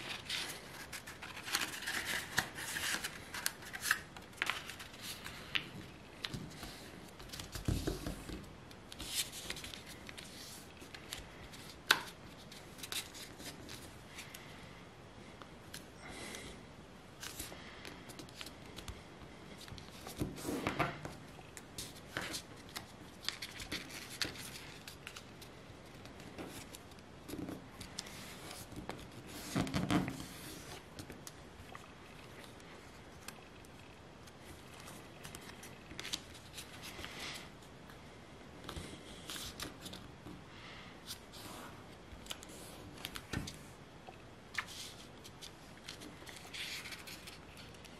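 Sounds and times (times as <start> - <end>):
paper rustling and creasing: 0.0 - 14.4, 44.6 - 47.9.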